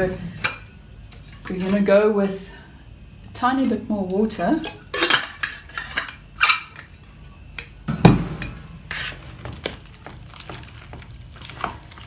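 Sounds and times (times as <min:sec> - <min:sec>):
spoon stirring thick mixture in tub: 0:08.9 - 0:12.0.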